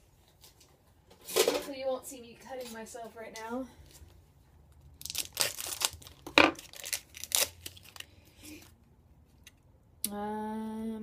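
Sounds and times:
plastic wrapper crinkling and tearing: 0:04.8 - 0:08.7.

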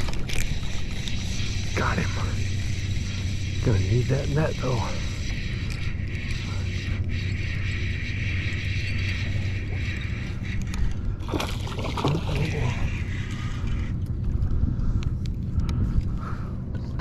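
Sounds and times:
fishing reel gears whirring: 0:00.0 - 0:17.0
low steady hum: 0:00.0 - 0:17.0
water sloshing: 0:11.0 - 0:12.9.

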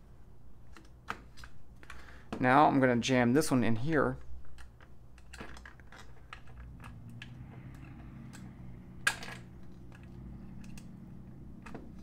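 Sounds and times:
faint hum: 0:06.2 - 0:12.0.

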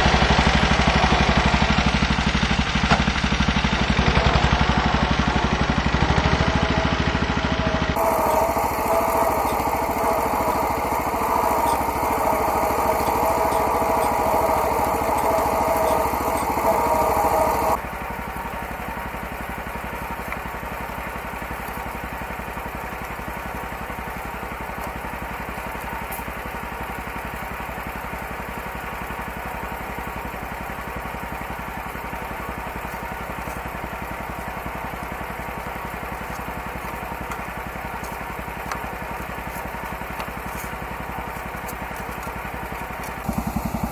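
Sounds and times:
small tractor engine running: 0:00.0 - 0:43.9.

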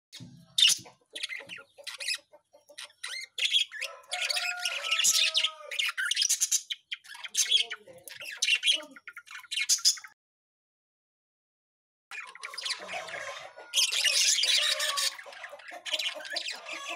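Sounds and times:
budgerigars chattering: 0:00.2 - 0:10.2, 0:12.1 - 0:16.9.

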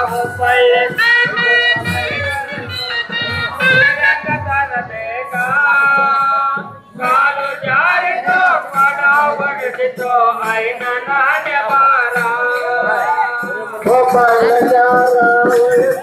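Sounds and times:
light percussion beat: 0:00.0 - 0:16.0
men singing together: 0:03.5 - 0:16.0.

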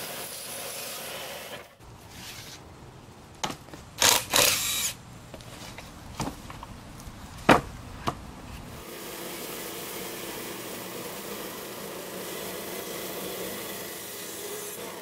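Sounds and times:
log knocking on wood: 0:07.4 - 0:08.2
band sawmill cutting log: 0:08.7 - 0:15.0.

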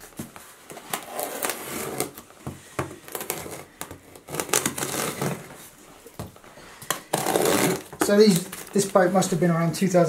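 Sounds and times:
knife slitting packing tape: 0:00.7 - 0:02.2, 0:03.0 - 0:05.5, 0:06.9 - 0:08.7.

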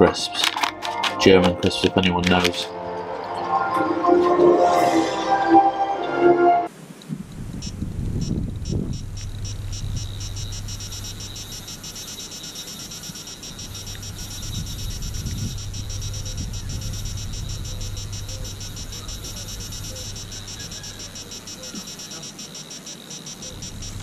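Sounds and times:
faint melody: 0:00.0 - 0:06.7
fast even ticking: 0:07.3 - 0:24.0.

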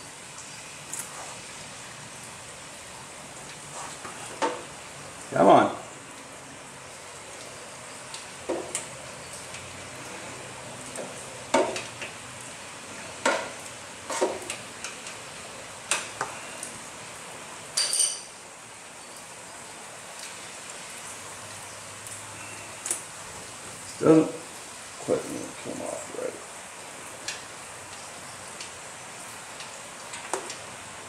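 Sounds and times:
steady background hiss: 0:00.0 - 0:31.0
wrench clinking on metal: 0:17.8 - 0:18.3.

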